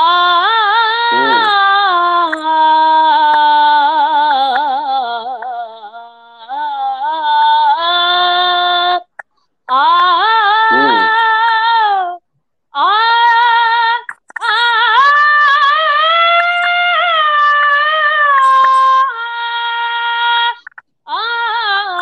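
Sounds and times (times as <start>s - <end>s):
boy singing unaccompanied: 0.0s - 9.1s, 9.7s - 12.2s, 12.8s - 22.0s.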